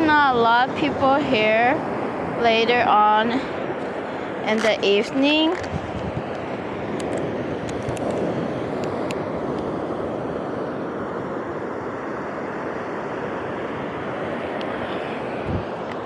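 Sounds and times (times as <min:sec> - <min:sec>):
waves breaking on beach: 0:00.0 - 0:16.0.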